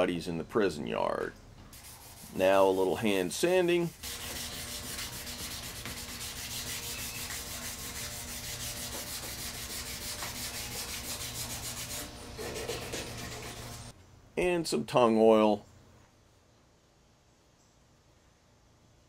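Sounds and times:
sandpaper scratching on wood: 0:01.8 - 0:13.9.

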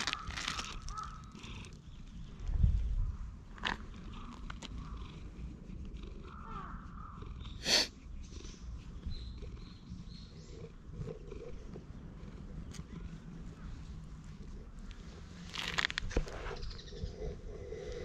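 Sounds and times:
cat purring: 0:03.6 - 0:18.0.

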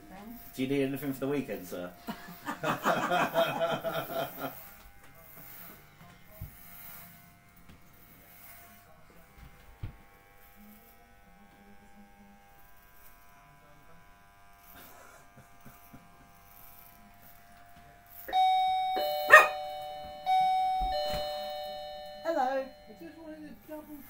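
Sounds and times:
electric hair clippers humming: 0:00.0 - 0:24.0
doorbell chime ringing: 0:18.3 - 0:23.6.

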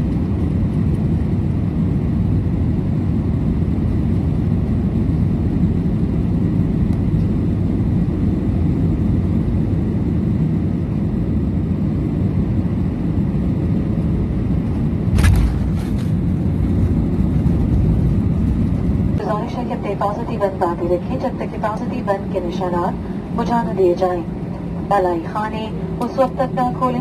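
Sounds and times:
airliner cabin rumble: 0:00.0 - 0:27.0
short sharp clatter: 0:15.1 - 0:16.2.

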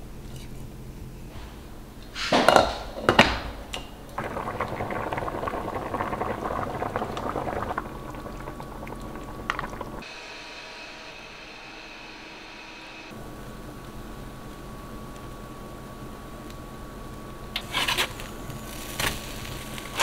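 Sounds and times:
broth bubbling in a pot: 0:03.1 - 0:10.1
steady hum: 0:03.9 - 0:10.0.

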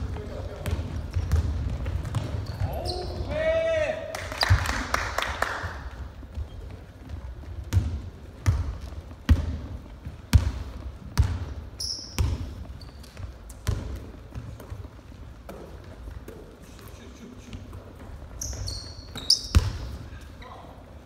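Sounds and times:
basketball bouncing on wooden floor: 0:00.0 - 0:03.1, 0:06.2 - 0:16.5, 0:17.8 - 0:20.0
high squeak: 0:18.4 - 0:19.6.

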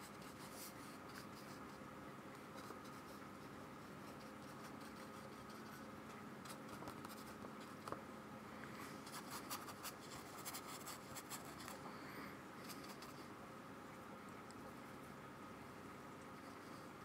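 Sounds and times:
paintbrush scratching on paper: 0:00.0 - 0:01.8, 0:02.5 - 0:07.9, 0:09.0 - 0:11.8
low steady hum: 0:00.0 - 0:17.0.

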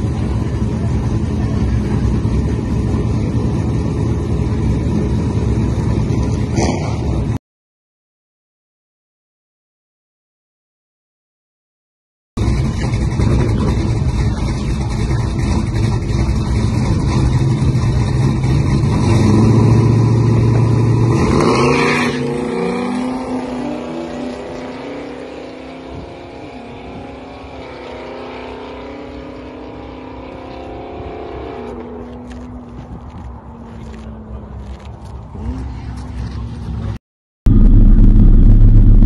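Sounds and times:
car engine revving and accelerating: 0:12.4 - 0:39.0.

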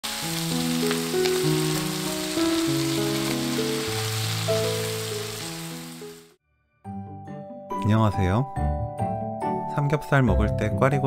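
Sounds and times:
meat and peppers sizzling in pan: 0:00.0 - 0:06.4.

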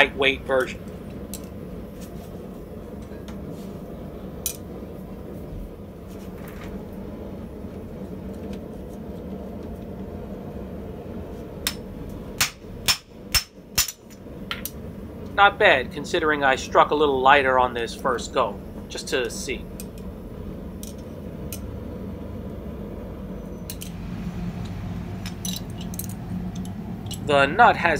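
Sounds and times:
low hum: 0:00.0 - 0:27.9
hammer strikes on metal plate: 0:12.4 - 0:14.0.

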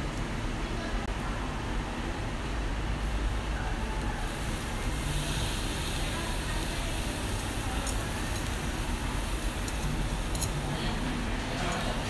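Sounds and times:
fish sizzling on grill: 0:03.7 - 0:12.0.

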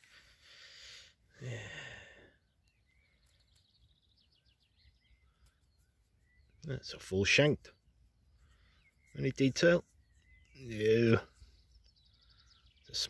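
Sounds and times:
man sighing: 0:00.9 - 0:02.4
small bird chirps: 0:02.4 - 0:13.0.

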